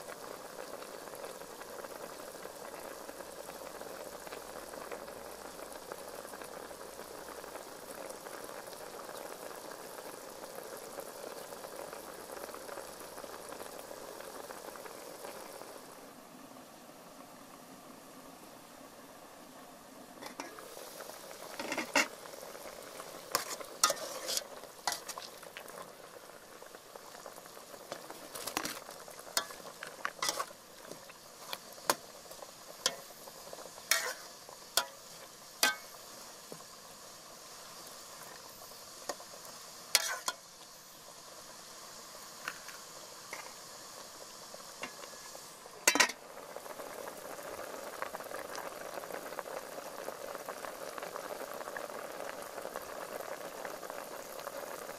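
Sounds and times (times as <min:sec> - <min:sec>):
soup bubbling: 0:00.0 - 0:16.2, 0:20.0 - 0:54.9
metal ladle clinking on pot: 0:45.9 - 0:46.2.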